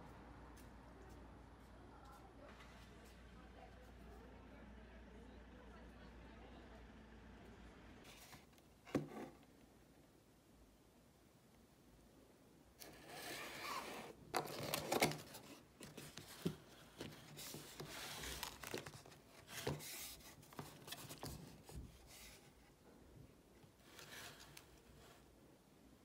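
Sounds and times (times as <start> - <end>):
cardboard box being opened: 12.8 - 21.6
wrapping paper crinkling: 14.3 - 19.5.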